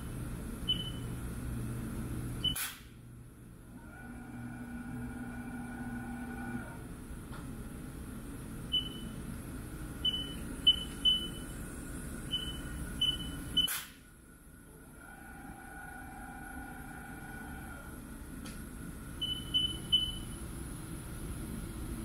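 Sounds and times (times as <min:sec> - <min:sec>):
machine running hum: 0:00.0 - 0:22.0
multi-tone machine whine: 0:03.2 - 0:07.0, 0:08.2 - 0:22.0.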